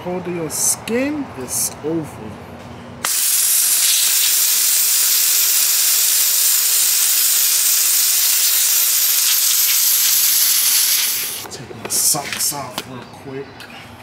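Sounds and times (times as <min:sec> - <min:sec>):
pressure washer spraying bricks: 0:03.0 - 0:11.5.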